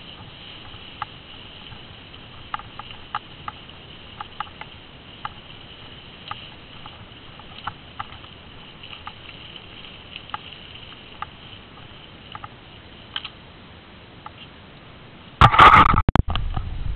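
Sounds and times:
bicycle clicks and rattles: 0:00.0 - 0:13.4
steady high-pitched hiss: 0:00.0 - 0:16.9.

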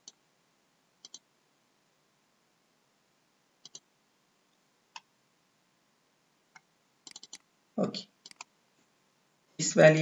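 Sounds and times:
computer mouse double-clicks: 0:01.0 - 0:01.2, 0:03.6 - 0:03.9, 0:06.6 - 0:07.5, 0:08.2 - 0:08.5.

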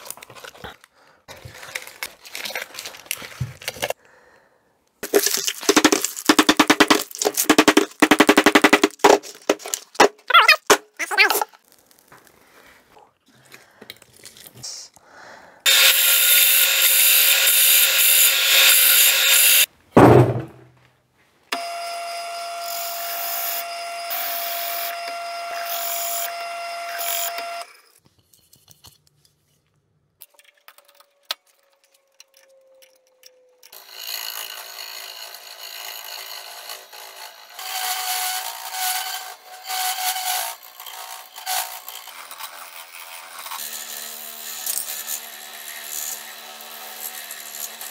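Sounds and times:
wood lathe spinning: 0:05.1 - 0:10.1, 0:15.7 - 0:19.7, 0:21.6 - 0:27.8, 0:33.8 - 0:47.9
power tool noise: 0:15.6 - 0:19.7, 0:21.5 - 0:27.8, 0:33.7 - 0:47.9
gouge cutting on lathe: 0:15.7 - 0:19.7
thud: 0:20.0 - 0:20.8
drill press motor whine: 0:21.5 - 0:27.7.

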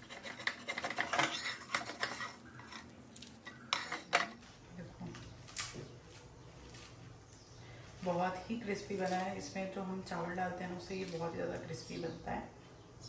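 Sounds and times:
dishes clinking: 0:00.7 - 0:04.4.

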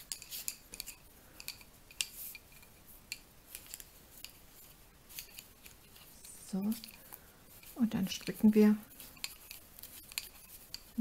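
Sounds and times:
knitting needles clicking: 0:00.0 - 0:11.0.

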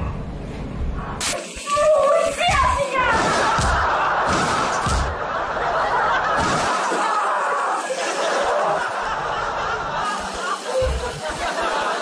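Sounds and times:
people laughing and snickering: 0:03.3 - 0:12.0.

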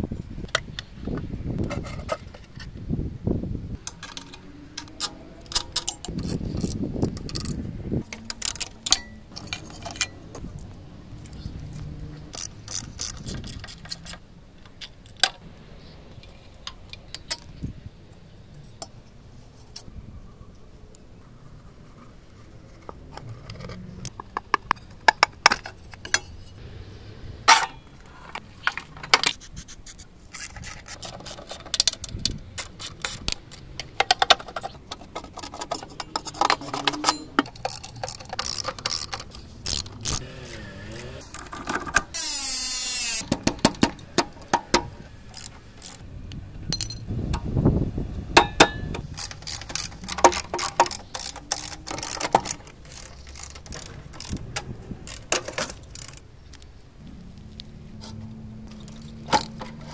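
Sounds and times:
socket wrench ratcheting: 0:03.8 - 0:10.2, 0:11.2 - 0:15.4, 0:28.6 - 0:47.5, 0:48.4 - 0:56.6
metal clinks and taps: 0:46.7 - 0:47.1.

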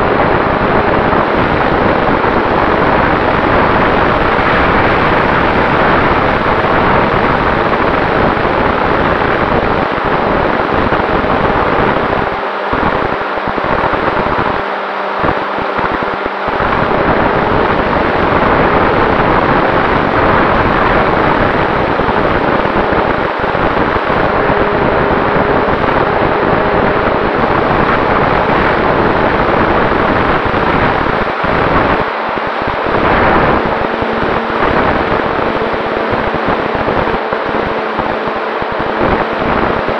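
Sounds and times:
model airplane propeller rushing: 0:00.0 - 0:39.9
wind buffeting microphone: 0:00.0 - 0:39.9.

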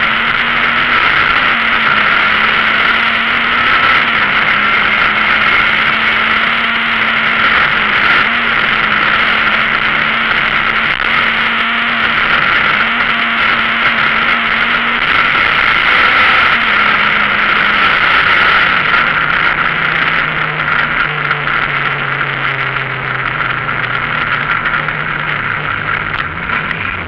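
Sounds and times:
car engine from inside cabin: 0:00.0 - 0:27.0.

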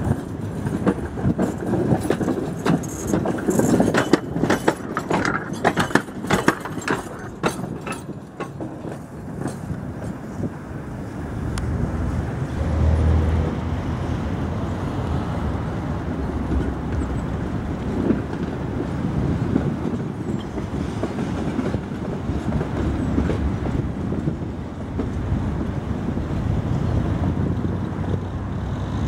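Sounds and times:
wheels knocking over rail joints: 0:00.0 - 0:10.3
tram rolling over tracks: 0:00.0 - 0:29.0.

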